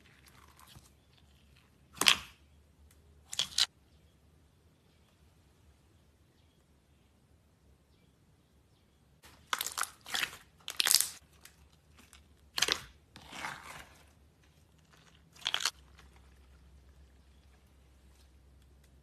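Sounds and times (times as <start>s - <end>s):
hands squishing slime: 9.3s - 19.0s.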